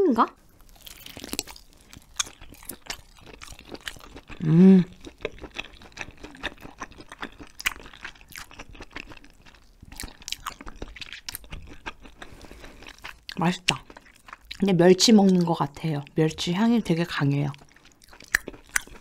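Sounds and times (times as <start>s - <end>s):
chewing jelly clicks and crunches: 0.6s - 14.7s, 17.5s - 19.0s
person humming mm: 4.4s - 5.0s.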